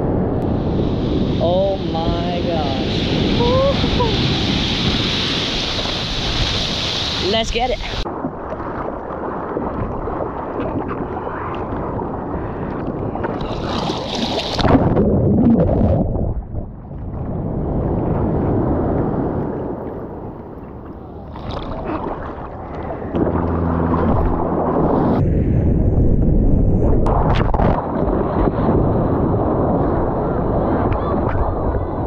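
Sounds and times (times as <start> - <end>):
wave breaking: 0.0 - 32.0
seawater sloshing and splashing: 3.8 - 17.0, 20.8 - 25.2.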